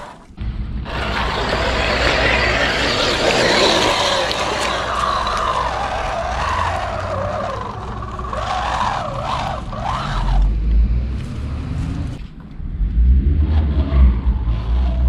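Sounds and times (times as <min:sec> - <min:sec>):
low rumble: 0:00.0 - 0:15.0
electric motor whining: 0:00.9 - 0:10.8.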